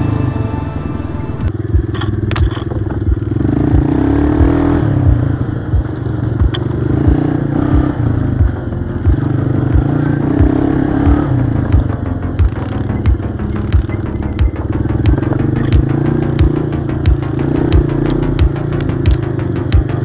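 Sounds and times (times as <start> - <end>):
background music with low beat: 0.0 - 20.0
atv engine revving: 1.5 - 20.0
clatter and scraping: 1.8 - 3.3, 15.3 - 15.9.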